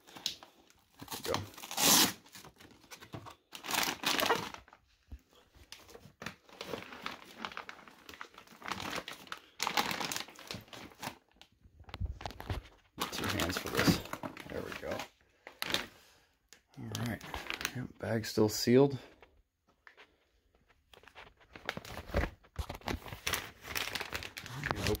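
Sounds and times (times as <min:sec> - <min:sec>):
plastic bag crinkling: 0:06.4 - 0:11.3, 0:12.0 - 0:15.9, 0:20.9 - 0:25.0.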